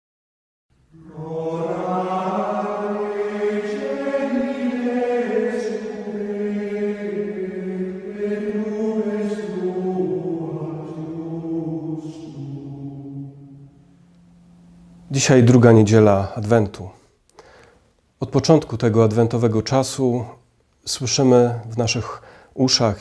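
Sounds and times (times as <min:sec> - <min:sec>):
slow sung chant: 0:00.7 - 0:17.7.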